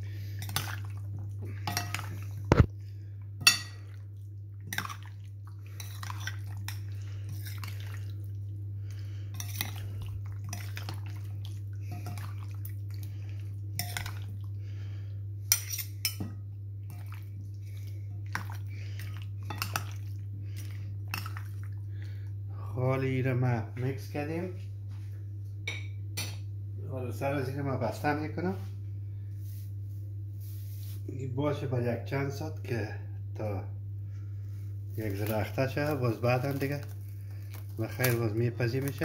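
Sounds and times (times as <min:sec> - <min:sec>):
steady low hum: 0:00.0 - 0:39.0
wet squishing of marinade: 0:00.4 - 0:02.7, 0:03.8 - 0:14.6, 0:16.8 - 0:22.3, 0:34.9 - 0:39.0.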